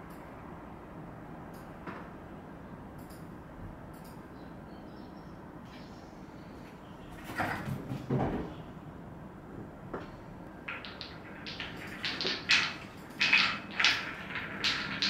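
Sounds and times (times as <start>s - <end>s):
balls rolling and clacking in tracks: 9.6s - 15.0s.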